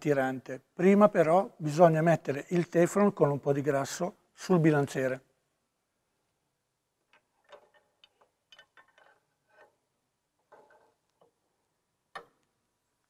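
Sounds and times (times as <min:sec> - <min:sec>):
small parts clicking and tapping: 0:07.1 - 0:09.8.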